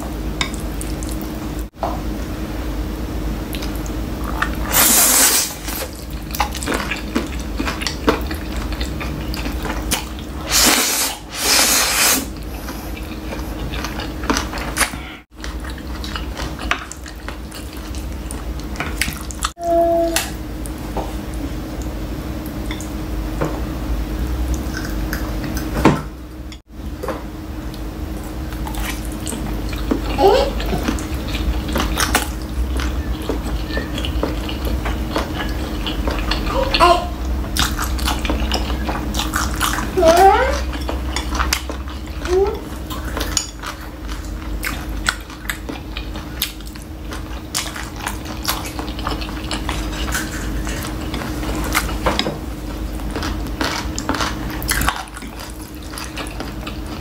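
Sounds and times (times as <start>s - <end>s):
slurping and chewing: 3.5s - 19.6s, 27.7s - 57.0s.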